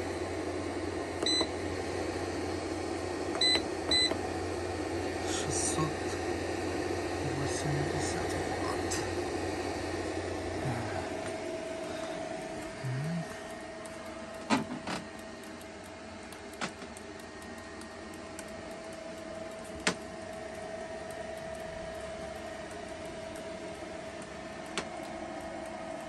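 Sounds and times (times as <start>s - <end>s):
inverter electrical whine and hum: 0.0s - 26.0s
sharp clicks: 13.5s - 26.0s.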